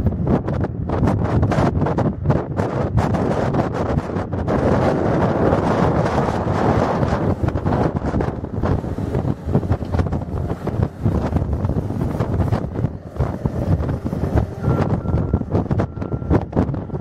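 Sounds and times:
wind buffeting microphone: 0:00.0 - 0:17.0
diesel engine running: 0:05.0 - 0:17.0.

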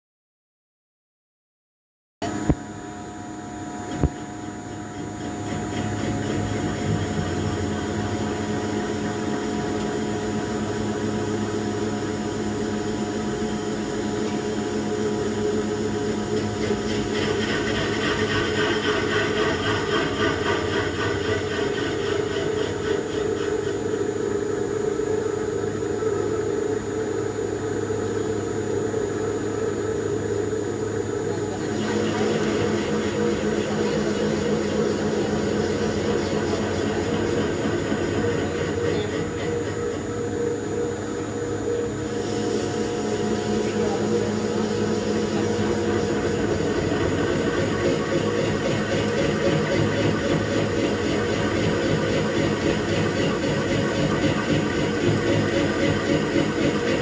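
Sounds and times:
pipe-threading machine whirring: 0:29.2 - 0:57.0.

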